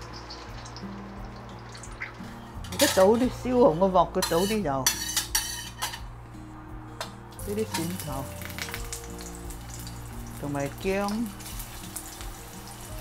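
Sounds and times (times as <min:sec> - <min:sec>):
hot oil sizzling: 0:00.0 - 0:06.0, 0:07.3 - 0:13.0
metal spatula scraping a wok: 0:02.6 - 0:06.1.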